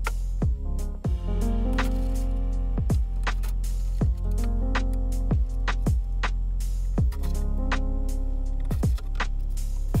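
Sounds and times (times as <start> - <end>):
deep bass: 0.0 - 10.0
electronic music: 0.0 - 10.0
kick drum beats: 0.4 - 1.4, 2.8 - 3.2, 5.3 - 6.3.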